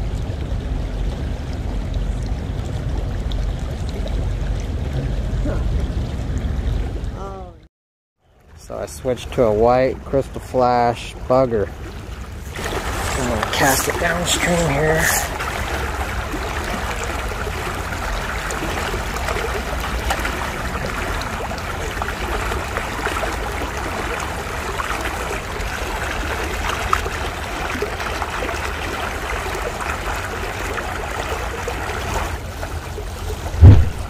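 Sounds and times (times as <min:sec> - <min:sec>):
low rumble: 0:00.0 - 0:07.7, 0:33.5 - 0:34.0
creek rushing over rocks: 0:12.4 - 0:34.0.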